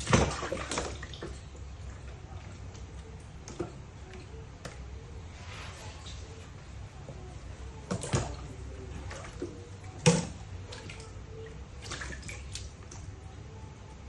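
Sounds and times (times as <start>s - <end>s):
water splashing in a plastic tub: 0.0s - 5.1s, 7.8s - 13.3s.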